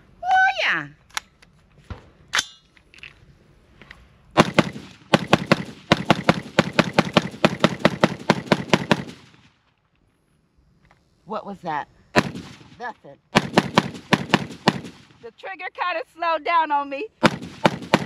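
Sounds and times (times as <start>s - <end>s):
rifle shots rapid fire: 4.4s - 9.4s, 12.2s - 15.2s, 17.2s - 18.0s.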